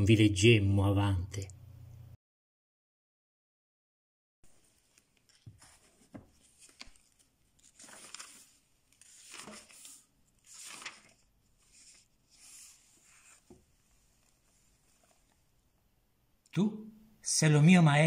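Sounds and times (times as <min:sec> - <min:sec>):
book pages rustling: 0:04.5 - 0:15.5.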